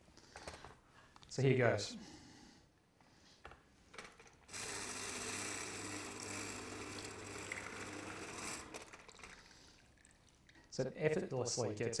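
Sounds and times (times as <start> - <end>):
citrus press motor humming: 4.5 - 9.0.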